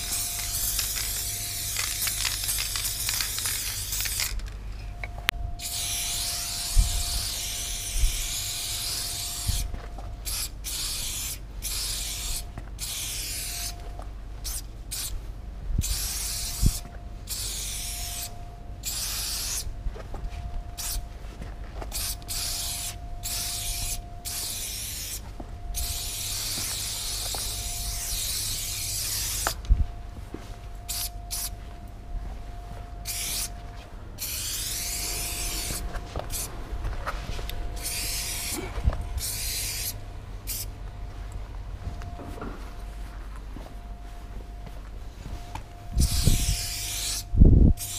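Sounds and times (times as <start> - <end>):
spray paint can hissing: 0.0 - 4.5, 5.6 - 13.7, 14.4 - 15.1, 15.8 - 19.7, 20.8 - 21.0, 21.9 - 25.2, 25.8 - 29.6, 30.9 - 31.5, 33.1 - 33.5, 34.2 - 36.5, 37.8 - 38.6, 39.2 - 40.7, 46.0 - 47.9.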